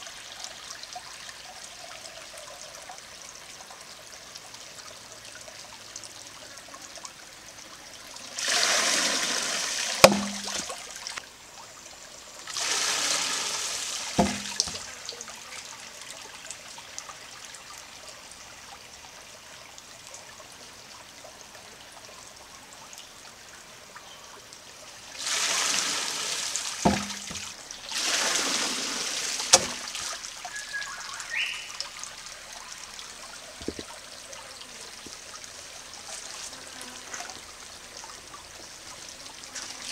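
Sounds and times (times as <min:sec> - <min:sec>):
creek trickling: 0:00.0 - 0:39.9
water rushing from bucket: 0:08.4 - 0:11.2, 0:12.5 - 0:15.0, 0:25.1 - 0:32.2
wooden hammer knocking stone: 0:10.0 - 0:10.6, 0:14.2 - 0:14.8.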